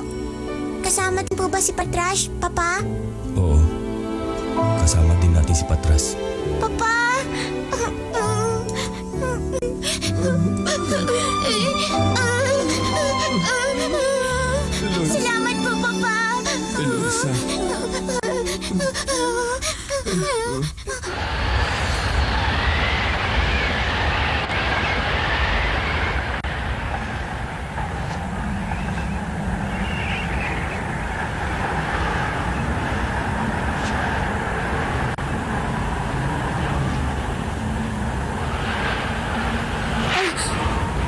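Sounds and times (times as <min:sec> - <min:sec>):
snowstorm wind blowing: 0:21.1 - 0:41.0.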